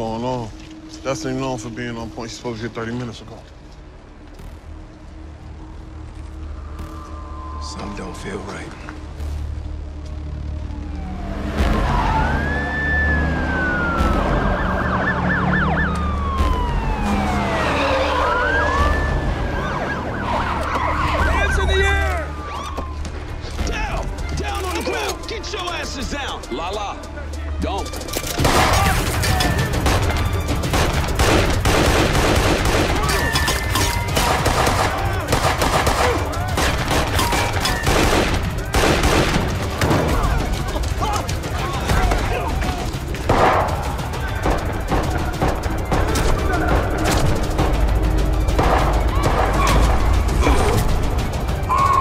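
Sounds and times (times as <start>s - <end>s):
police sirens wailing: 4.8s - 52.0s
heavy gunfire: 28.4s - 33.4s, 34.0s - 40.5s.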